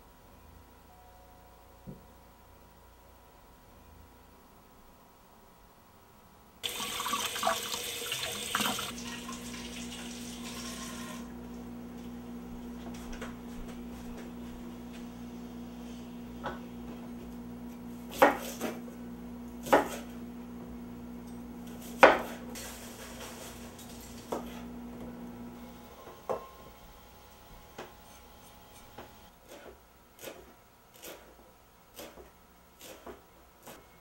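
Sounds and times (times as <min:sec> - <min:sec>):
knife chopping on cutting board: 0:18.1 - 0:18.8, 0:19.6 - 0:20.1, 0:21.8 - 0:22.4, 0:32.0 - 0:33.8.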